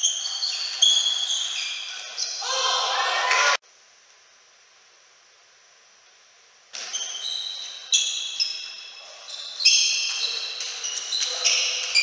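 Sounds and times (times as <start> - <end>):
shoes squeaking on floor: 0.0 - 2.5, 6.7 - 12.0.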